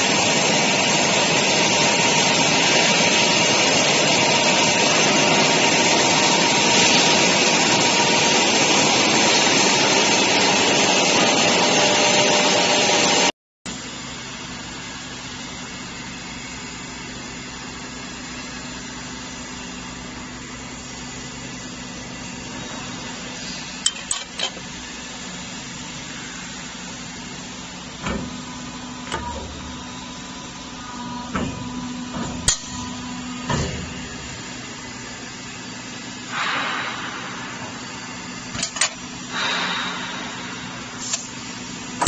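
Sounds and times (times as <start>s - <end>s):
machine humming: 0.0s - 42.0s
metallic clanks and clicks: 23.8s - 24.7s, 38.6s - 39.0s.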